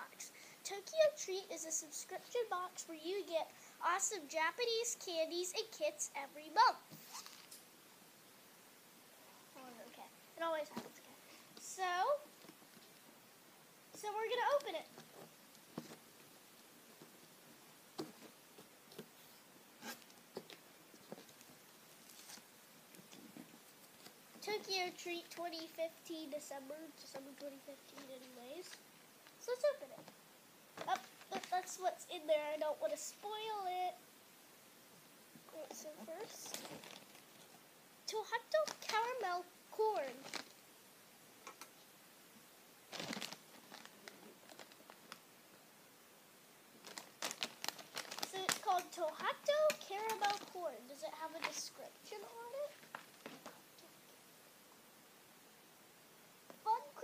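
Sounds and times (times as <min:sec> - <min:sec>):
foil snack bag crinkling: 0:40.1 - 0:40.6, 0:42.9 - 0:45.2, 0:46.8 - 0:50.6.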